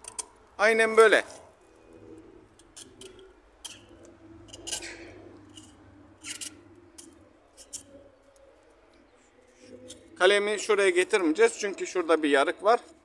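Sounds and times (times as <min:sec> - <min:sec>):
knife scraping wood: 0:02.6 - 0:08.4.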